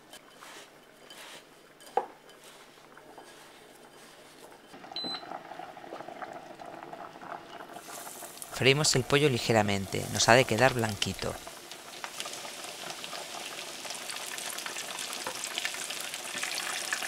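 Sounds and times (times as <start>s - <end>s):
oil heating in frying pan: 0.0s - 17.0s
chicken rustling in breadcrumbs: 0.4s - 1.5s, 2.4s - 4.6s.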